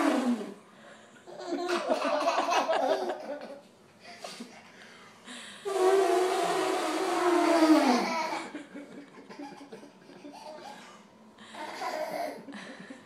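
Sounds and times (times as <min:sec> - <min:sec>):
young child laughing: 0:08.1 - 0:11.0.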